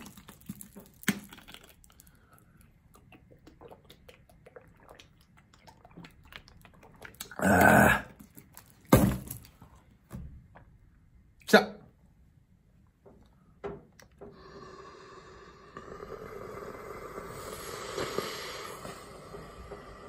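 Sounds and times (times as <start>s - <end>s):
man gulping water: 0.0s - 8.9s
breathy exhale: 14.2s - 20.0s.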